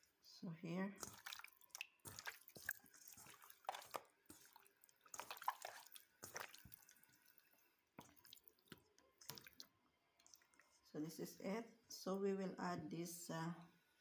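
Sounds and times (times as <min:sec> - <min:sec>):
wet squelches of kneading meat: 0:00.0 - 0:10.9.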